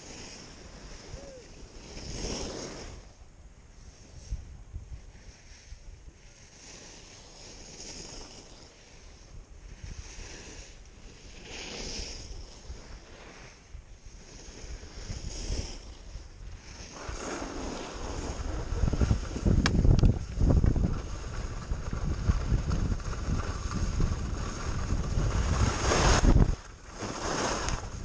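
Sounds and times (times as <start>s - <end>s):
skis scraping on snow: 0.0s - 28.0s
wind buffeting microphone: 13.7s - 28.0s.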